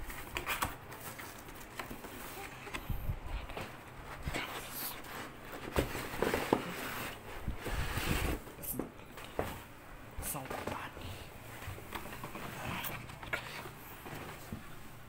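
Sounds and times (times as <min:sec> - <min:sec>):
cardboard rustling: 0:00.0 - 0:09.8
cardboard insert scraping and sliding: 0:05.0 - 0:08.4.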